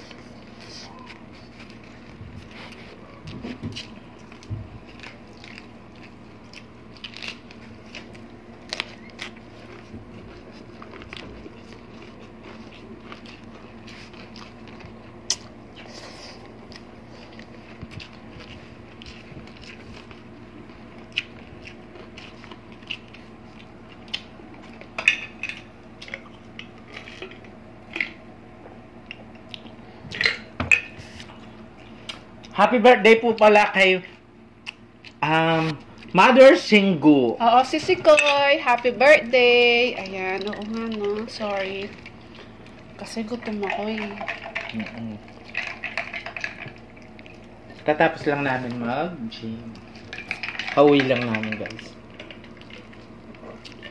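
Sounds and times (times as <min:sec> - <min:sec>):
people chewing crunchy vegetables: 0:00.0 - 0:32.6, 0:33.3 - 0:36.8, 0:39.8 - 0:53.9
lip smacks and mouth clicks: 0:14.2 - 0:15.9, 0:34.6 - 0:35.2.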